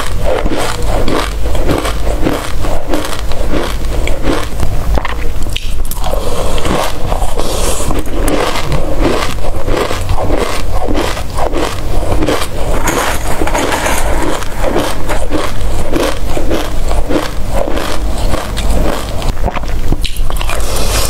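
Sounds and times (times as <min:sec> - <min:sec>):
crunchy chewing: 0:00.0 - 0:21.0
spoon scraping metal tray: 0:12.5 - 0:15.2.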